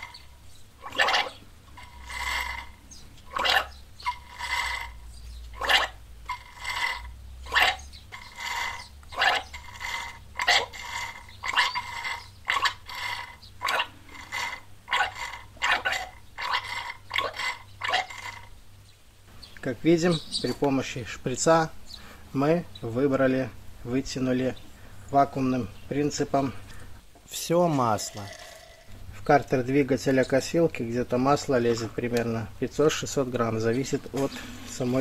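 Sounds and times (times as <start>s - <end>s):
oil slurping and gurgling: 0.8s - 5.0s, 5.6s - 18.5s, 27.9s - 29.0s.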